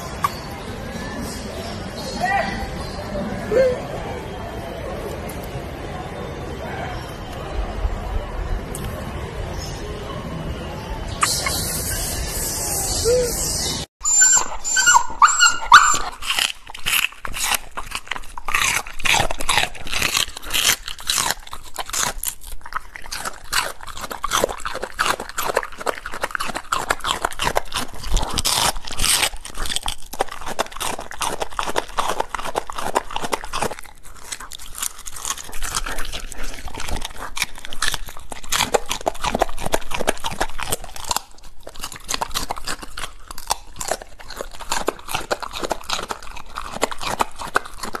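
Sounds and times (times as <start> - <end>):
dog whining: 11.3 - 16.2
dog crunching vegetables: 14.1 - 48.0.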